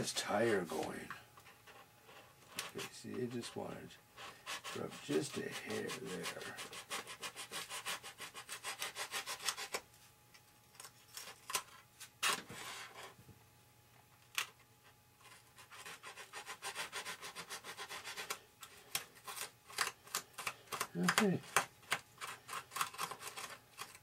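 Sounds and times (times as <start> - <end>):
hand tool scraping foam: 4.3 - 9.8.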